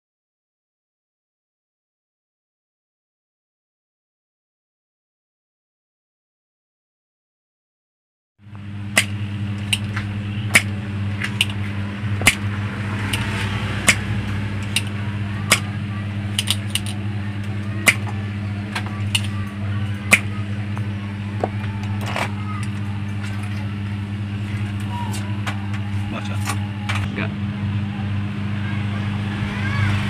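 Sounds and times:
steady low hum: 8.4 - 30.0
sharp clicks and ticks: 13.0 - 15.7.

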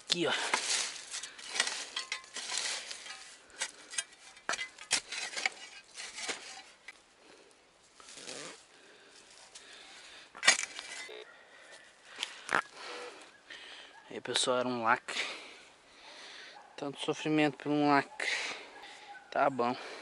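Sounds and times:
digger scraping soil: 0.0 - 7.0, 10.4 - 11.2
metal digger clinking in ground: 0.0 - 7.0, 10.4 - 11.2.

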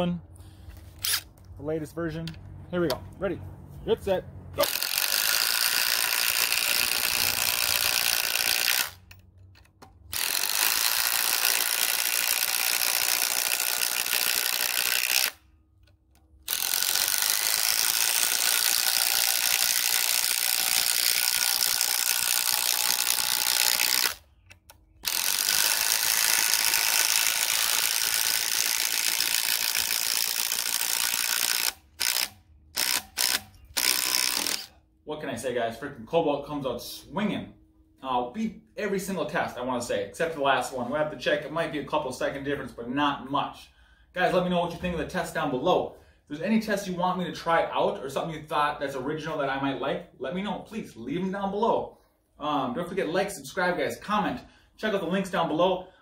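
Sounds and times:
impact driver hammering: 4.6 - 15.4.

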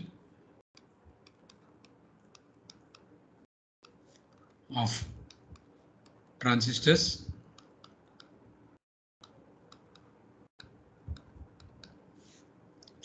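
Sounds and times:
stylus clicking on pen tablet: 0.8 - 3.2, 7.4 - 8.4, 9.2 - 12.1.

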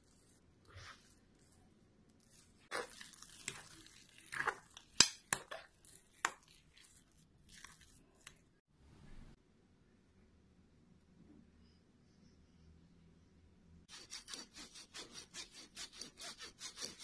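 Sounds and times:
wet squishing and scraping: 0.0 - 8.6.

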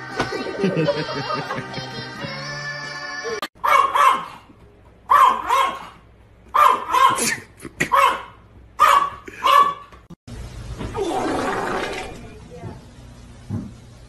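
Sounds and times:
small dog yapping: 3.6 - 4.4, 5.1 - 9.9.

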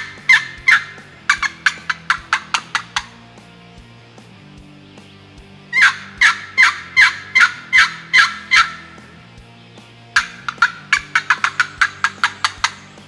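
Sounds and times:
turkey yelps: 0.0 - 3.2, 5.8 - 9.0, 10.2 - 12.9.

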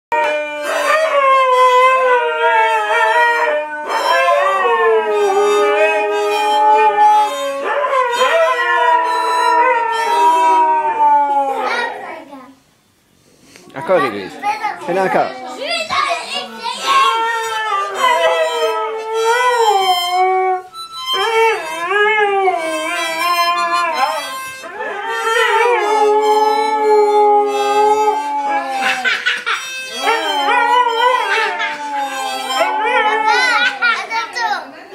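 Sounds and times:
harmonica: 0.1 - 10.9, 16.7 - 33.8
dogs howling: 0.1 - 12.2, 15.2 - 34.2.

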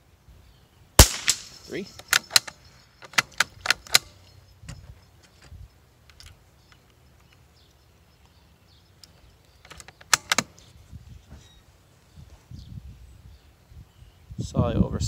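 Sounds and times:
rifle bolt clacks: 1.0 - 5.5, 9.0 - 10.7
rifle bolt metallic clicks: 1.0 - 7.4, 9.0 - 10.7.

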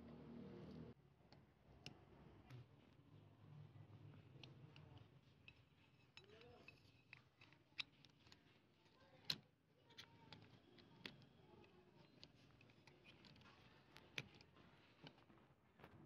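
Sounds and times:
metal parts clicking and scraping: 5.4 - 15.3.

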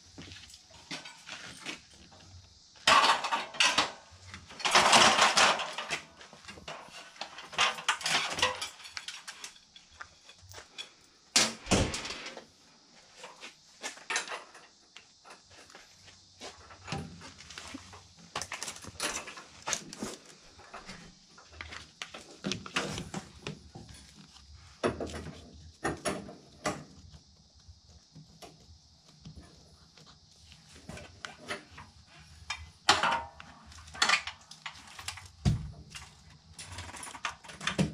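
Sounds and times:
clicks and knocks on sheet metal: 2.9 - 6.1.

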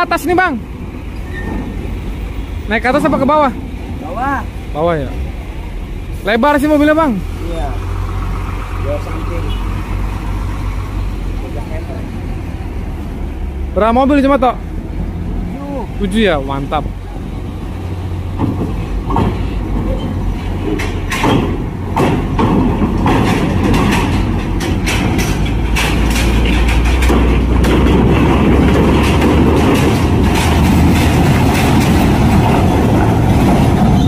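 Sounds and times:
large vehicle engine running: 0.0 - 34.0
metallic clanks on steel ramp: 18.3 - 34.0.

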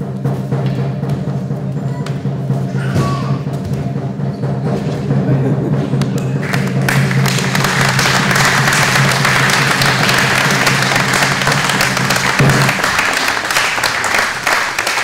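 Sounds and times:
audience applauding: 6.0 - 15.0.

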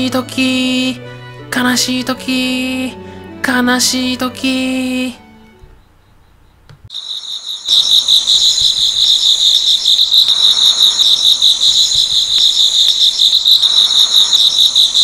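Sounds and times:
crickets chirping: 5.5 - 15.0.

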